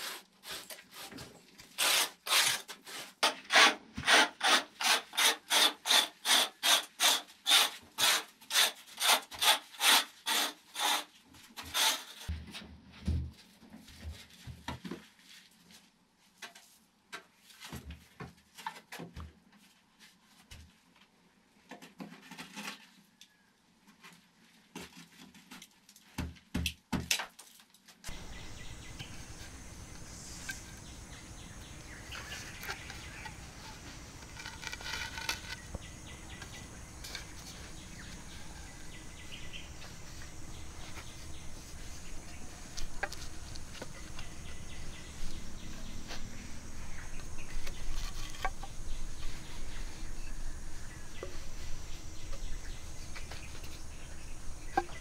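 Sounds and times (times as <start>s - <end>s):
birds: 28.1s - 55.0s
insects: 28.1s - 55.0s
bamboo poles knocking: 42.2s - 44.6s, 47.5s - 49.1s, 52.2s - 55.0s.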